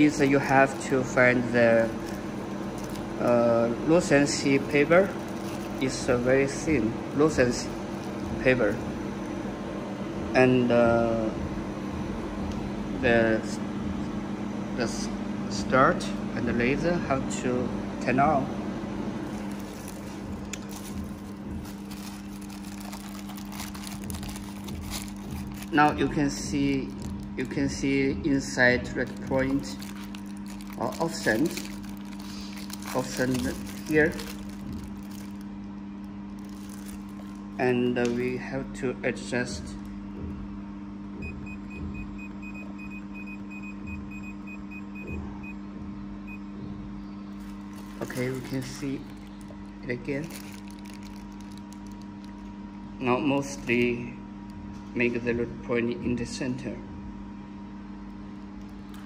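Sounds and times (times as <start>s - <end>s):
low electrical hum: 0.0s - 59.0s
paper rustling: 1.8s - 3.5s, 4.7s - 6.1s, 19.2s - 27.5s, 29.1s - 35.4s, 36.3s - 37.5s, 47.4s - 52.5s.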